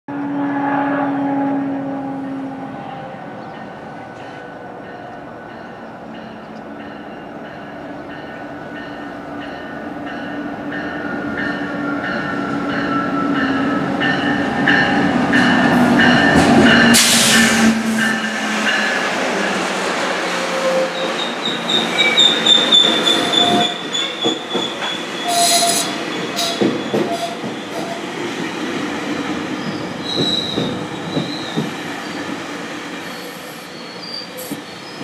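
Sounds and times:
diesel train engine and wheels: 0.1s - 35.0s
loud hiss: 17.0s - 17.7s.

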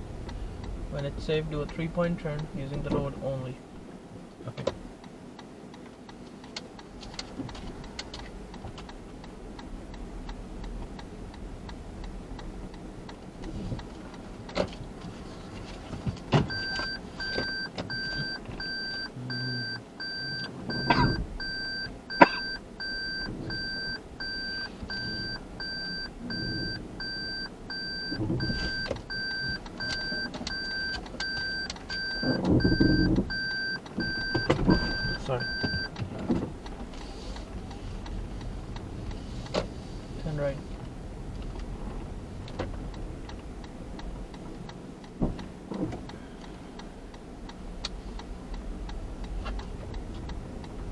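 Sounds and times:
knocks and clicks inside car: 4.4s - 4.8s, 12.4s - 19.8s, 20.7s - 22.6s, 25.0s - 37.0s, 38.4s - 46.2s
car reverse warning beeps: 16.4s - 36.3s.

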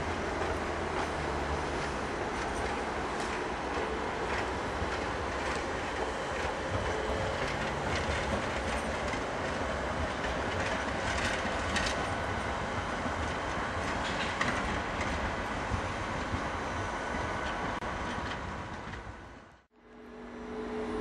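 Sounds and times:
train rumble: 0.0s - 21.0s
train wheels clacking over joints: 0.2s - 16.5s.

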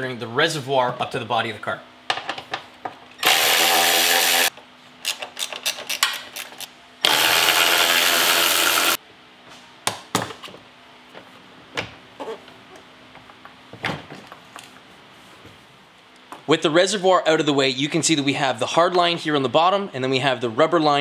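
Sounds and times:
electric ratchet spinning: 3.2s - 4.5s, 6.4s - 9.0s.

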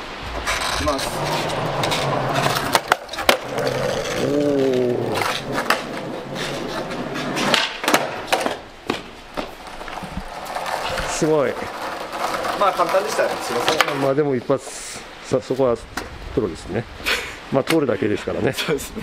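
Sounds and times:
skateboard wheels rolling on concrete: 0.0s - 19.0s
skateboard clacks: 0.3s - 14.1s.

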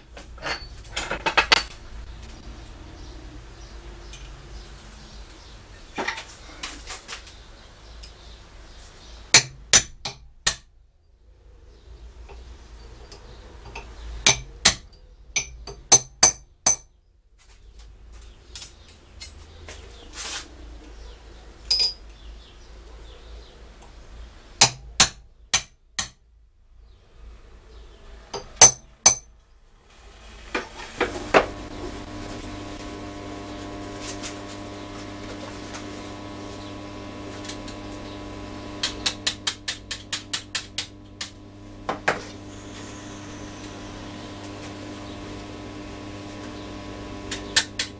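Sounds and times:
hammer striking steel: 14.3s - 16.9s, 28.4s - 29.3s
electrical hum: 30.0s - 47.9s.

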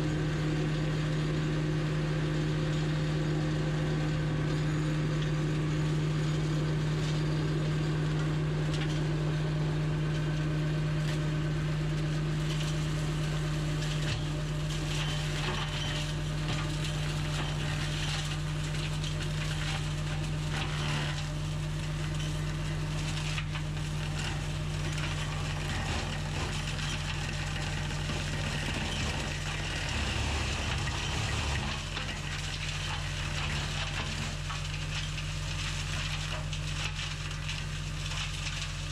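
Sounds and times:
tractor engine running under load: 0.0s - 38.9s
crackling and snapping of shredding: 10.0s - 38.9s
flail mower chopping vegetation: 10.0s - 38.9s.

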